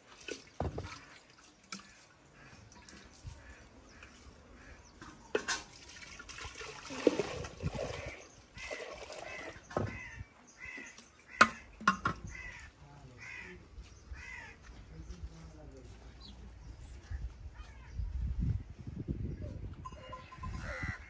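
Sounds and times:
liquid pouring and splashing: 0.0s - 3.3s, 5.5s - 9.7s
crows cawing: 8.0s - 14.8s, 20.5s - 21.0s
steel vessels clinking: 19.8s - 21.0s.

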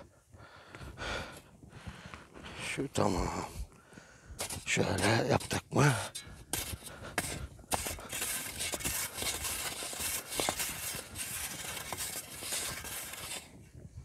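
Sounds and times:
shovel scraping snow: 4.4s - 13.6s.

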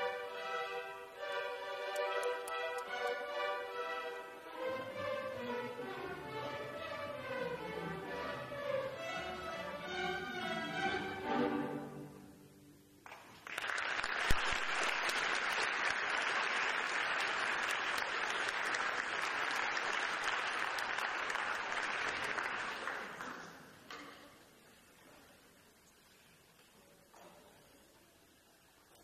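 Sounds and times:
orchestral string chord: 0.0s - 12.8s
audience applauding: 13.0s - 23.7s.

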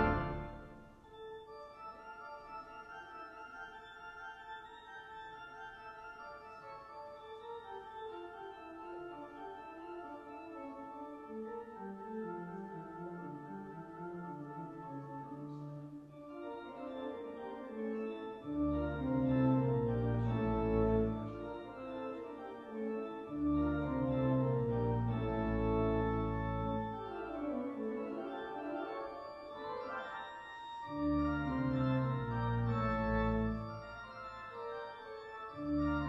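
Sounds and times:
deep organ pedal bass: 0.0s - 0.7s, 18.6s - 21.6s, 23.3s - 27.5s, 30.9s - 34.0s, 35.6s - 36.0s
pipe organ chords: 0.0s - 36.0s.

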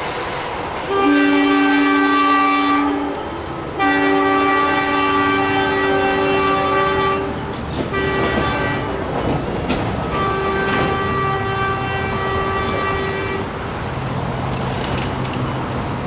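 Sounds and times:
diesel locomotive drone: 0.0s - 16.0s
train horn blasts: 0.9s - 9.2s, 10.0s - 13.5s.

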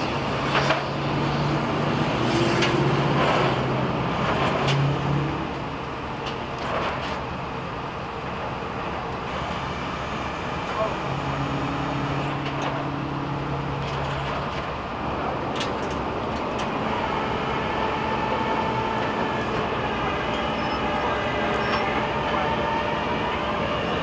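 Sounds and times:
freeway traffic roar: 0.0s - 24.0s.

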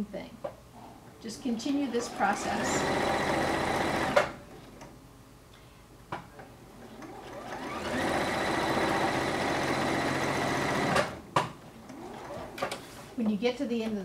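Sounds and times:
sewing machine stitching: 1.6s - 4.4s, 7.0s - 11.2s, 11.8s - 13.0s.

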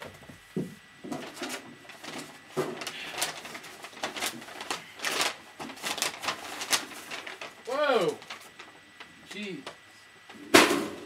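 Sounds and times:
paper bag rustling and crinkling: 1.0s - 9.8s.

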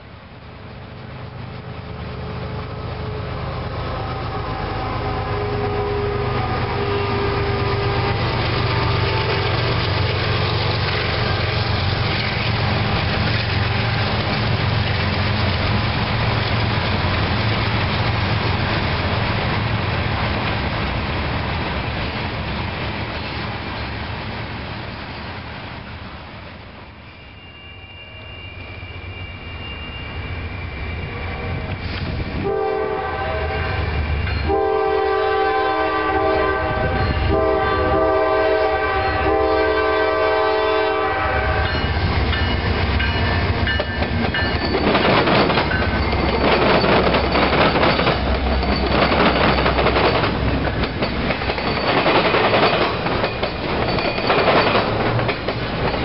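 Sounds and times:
freight train rolling past: 0.0s - 56.0s.

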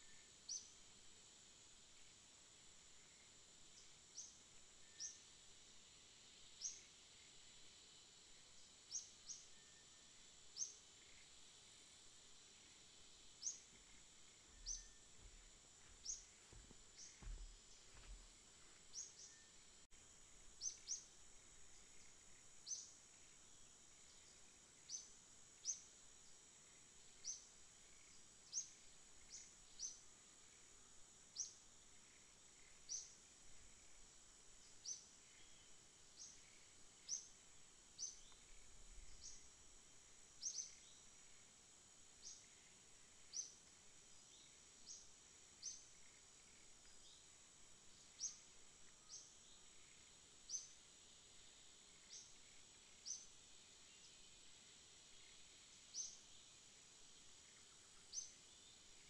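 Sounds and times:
faint high hiss: 0.0s - 59.0s
small bird chirping: 13.3s - 19.6s, 20.5s - 23.1s, 47.9s - 50.8s
faint low thumps: 13.7s - 18.4s.

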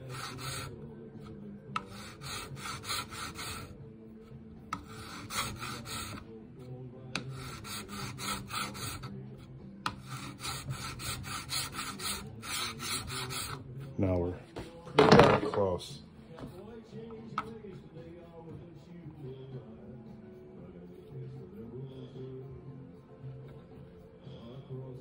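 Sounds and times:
hand file scraping metal: 0.0s - 3.8s, 4.7s - 6.3s, 7.2s - 13.8s.

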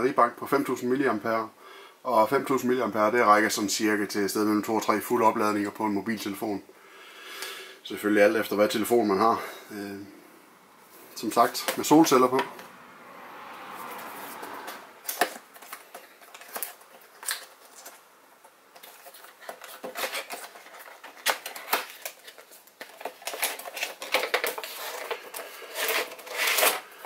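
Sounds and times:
cardboard box being opened: 18.8s - 26.8s.

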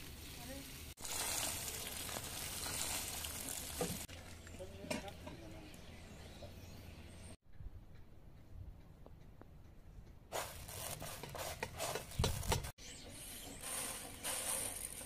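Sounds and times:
rice grains rustling on metal: 13.5s - 15.0s.

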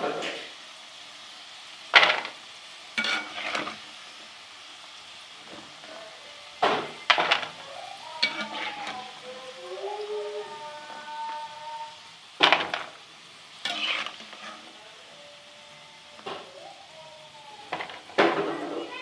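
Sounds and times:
oil sizzling: 0.0s - 19.0s
spoon scraping a pan: 3.0s - 3.9s, 8.2s - 9.2s, 13.6s - 14.8s.

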